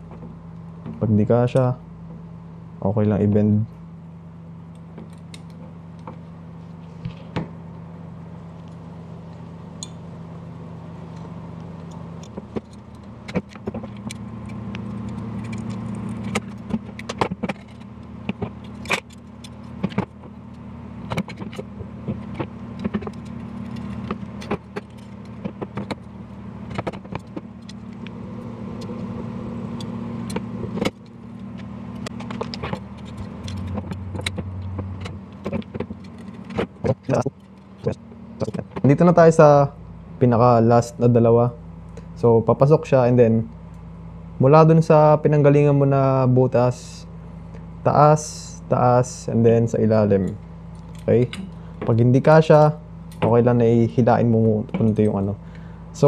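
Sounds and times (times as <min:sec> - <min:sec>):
steady low hum: 0:00.0 - 0:56.0
metal spokes clicking and jingling: 0:11.1 - 0:28.1, 0:29.7 - 0:37.9.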